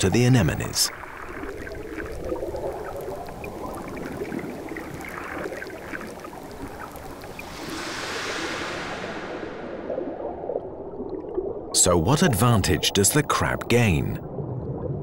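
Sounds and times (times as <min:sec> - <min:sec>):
underwater murky rush: 0:00.0 - 0:15.0
small clicks and crackles: 0:01.3 - 0:07.4.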